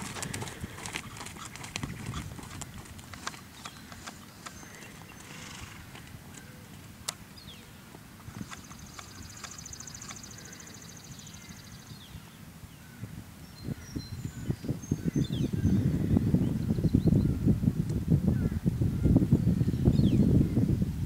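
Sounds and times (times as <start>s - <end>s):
hoofbeats on sand: 0.0s - 6.5s.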